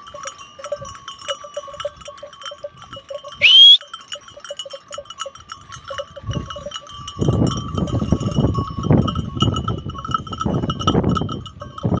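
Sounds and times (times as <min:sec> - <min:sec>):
sheep bells clinking: 0:00.0 - 0:12.0.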